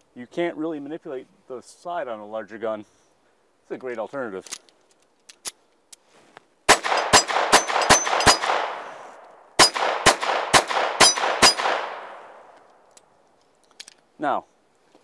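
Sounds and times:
pistol shots: 6.7s - 9.0s, 9.6s - 12.4s
gunshot echo: 6.7s - 12.4s.

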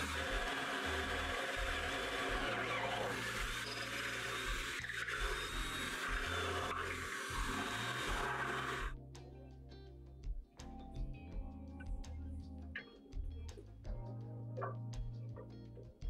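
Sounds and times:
cordless drill boring plywood: 0.0s - 9.0s.

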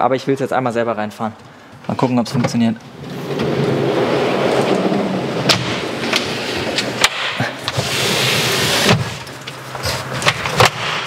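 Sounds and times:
drawer slides rolling: 2.8s - 10.8s.

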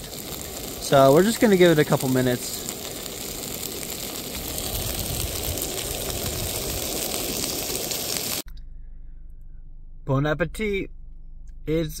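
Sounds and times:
food sizzling in a frying pan: 0.0s - 8.5s.

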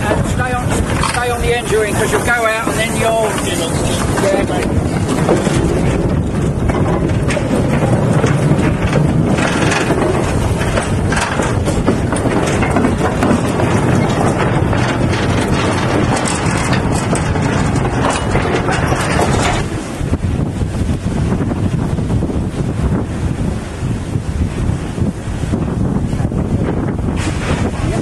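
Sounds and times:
train wheels clattering over joints: 0.0s - 22.3s.

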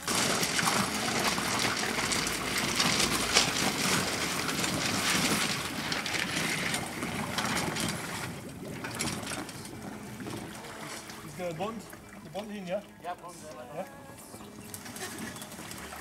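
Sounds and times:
small crackles and clicks: 0.0s - 9.8s
water splashing: 0.0s - 16.0s.

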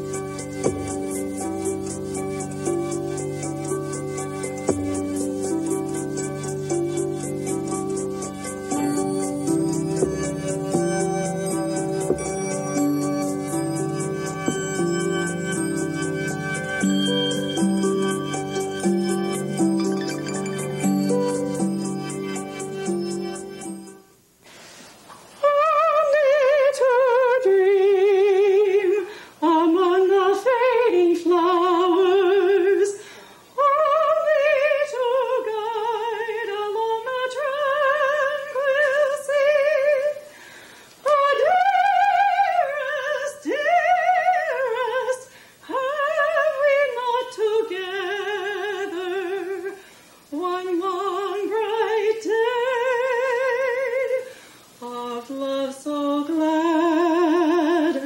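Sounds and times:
woman singing unaccompanied: 25.4s - 33.0s, 33.6s - 40.3s, 41.0s - 58.0s.

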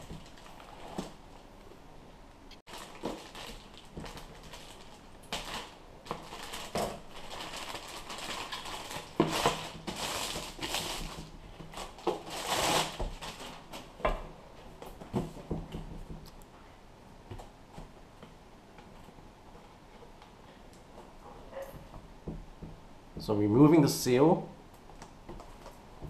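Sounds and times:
plastic bag crinkling: 0.0s - 1.5s, 2.7s - 14.0s.

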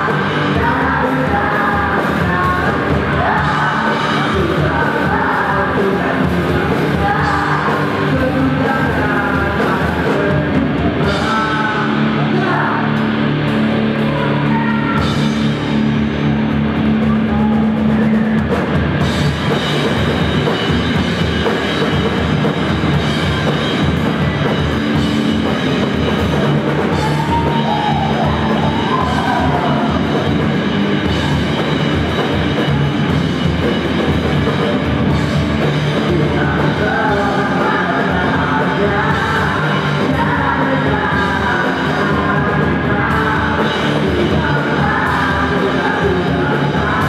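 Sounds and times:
sung or shouted vocals: 0.0s - 15.7s, 26.8s - 33.2s, 35.1s - 47.0s
bass guitar: 0.0s - 47.0s
distorted electric guitars: 0.0s - 47.0s
drum kit: 0.0s - 47.0s.

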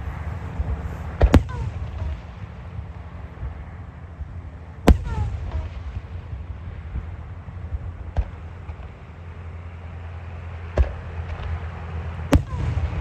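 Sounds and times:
low rumble: 0.0s - 13.0s
fireworks bangs: 1.1s - 2.6s, 4.8s - 7.1s, 12.3s - 13.0s.

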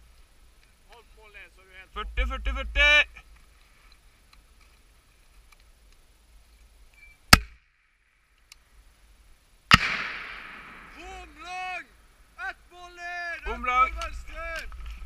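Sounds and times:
grenade launcher firing: 9.7s - 11.0s.

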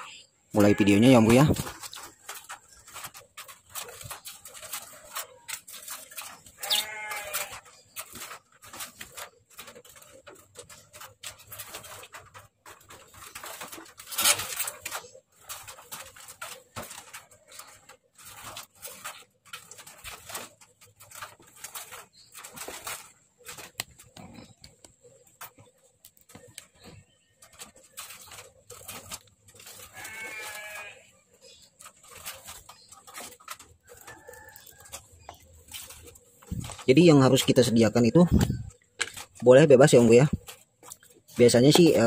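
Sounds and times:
animal bleating: 0.5s - 1.6s, 5.0s - 7.8s, 29.7s - 31.1s.

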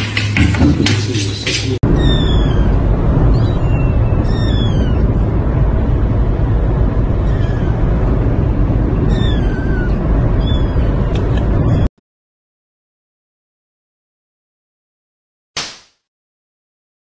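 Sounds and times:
car cabin rumble: 1.5s - 11.9s
kitten meowing: 1.8s - 5.3s, 7.2s - 7.9s, 9.0s - 11.9s.

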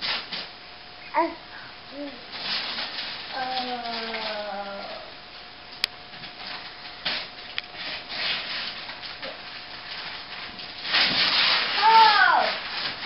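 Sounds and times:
wrapping paper tearing: 2.3s - 5.1s, 6.5s - 13.0s.

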